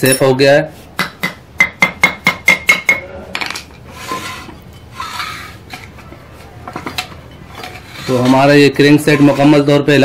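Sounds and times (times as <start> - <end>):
small hammer tapping metal: 1.0 - 3.1.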